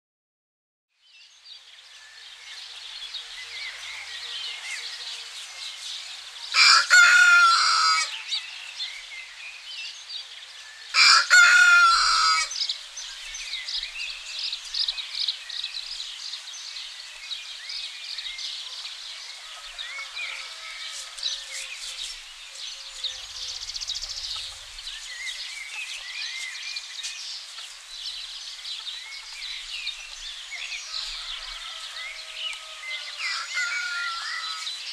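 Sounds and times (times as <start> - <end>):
small birds chirping: 1.0 - 34.9
rooster crowing: 6.5 - 8.5, 10.9 - 12.6, 19.3 - 21.8, 30.8 - 34.7.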